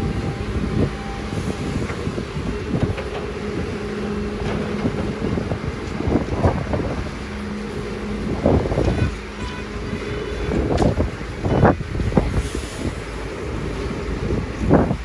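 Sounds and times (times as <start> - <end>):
excavator diesel engine humming: 0.0 - 15.0
excavator knocks and clanks: 1.8 - 7.5, 8.6 - 12.3.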